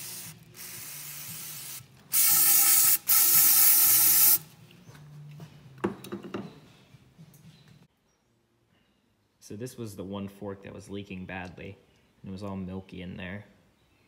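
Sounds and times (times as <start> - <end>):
aerosol spray hissing: 0.0 - 4.4
loud spray blasts: 0.0 - 4.4.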